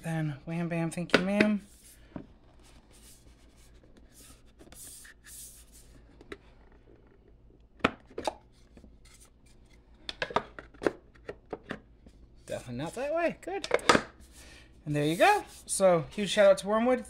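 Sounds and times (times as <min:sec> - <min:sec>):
wood rubbing on wood: 0:14.9 - 0:15.8.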